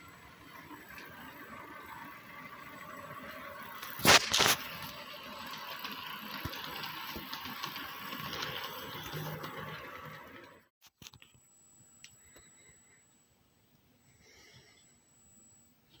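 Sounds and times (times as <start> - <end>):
model train motor whirr: 0.0 - 10.7
faint wheel clicking: 4.6 - 10.6.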